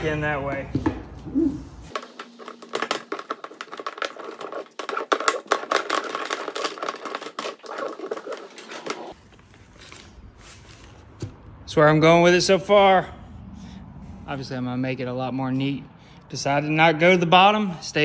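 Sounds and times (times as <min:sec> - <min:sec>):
plastic tubing clattering: 0:01.9 - 0:09.2.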